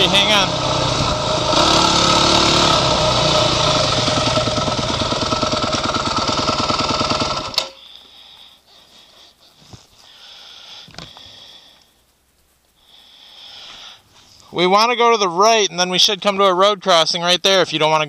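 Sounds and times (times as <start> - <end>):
dirt bike engine idling: 0.0 - 11.8
faint clicks: 10.8 - 12.8.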